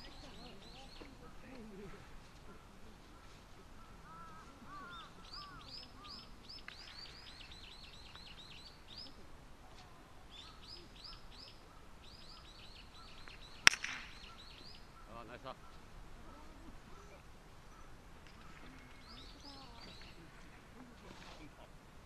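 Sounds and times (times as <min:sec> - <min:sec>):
small birds chirping: 0:00.0 - 0:22.0
golf club striking ball: 0:13.2 - 0:14.4.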